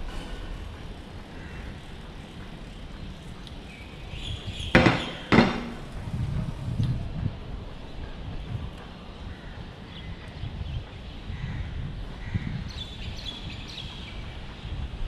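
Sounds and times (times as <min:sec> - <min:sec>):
sharp knocks: 0:04.7 - 0:06.0
low rumble: 0:05.7 - 0:08.8.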